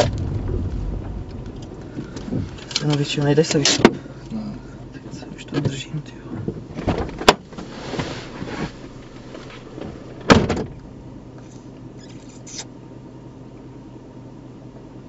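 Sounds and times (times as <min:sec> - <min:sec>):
car door shutting thump: 0:06.4 - 0:08.6, 0:09.9 - 0:10.8.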